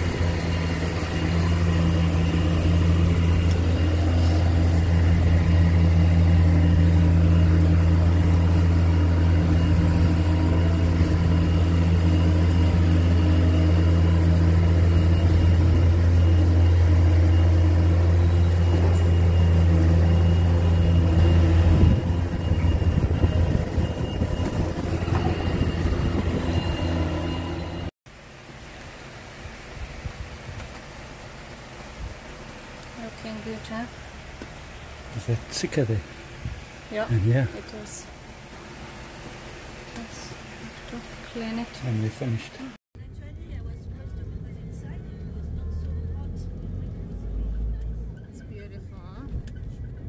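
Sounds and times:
motor humming: 0.0s - 27.9s
rough uneven machine noise: 0.0s - 27.9s.

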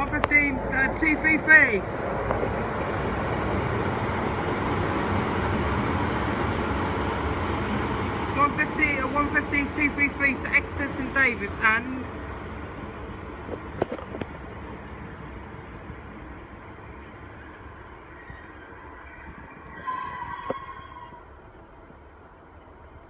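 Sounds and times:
diesel train rumble: 0.0s - 23.0s
train wheel squeal: 17.1s - 21.4s.

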